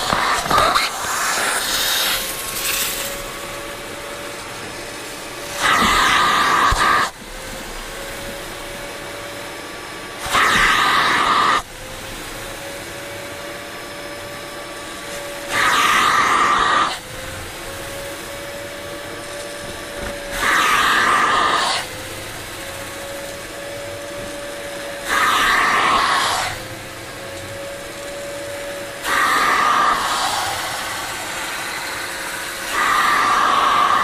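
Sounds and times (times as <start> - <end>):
slurping suction strokes: 0.0 - 3.5, 5.2 - 7.1, 29.0 - 34.0
vacuum motor droning: 0.0 - 34.0.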